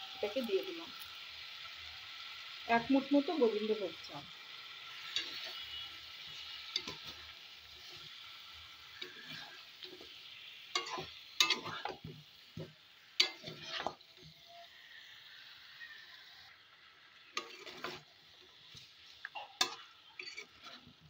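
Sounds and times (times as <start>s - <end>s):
curry sizzling in a pan: 0.0s - 21.0s
sharp scrapes against pan: 5.0s - 7.2s, 9.0s - 10.1s, 10.8s - 12.0s, 13.2s - 14.0s, 17.4s - 18.0s, 19.6s - 20.9s.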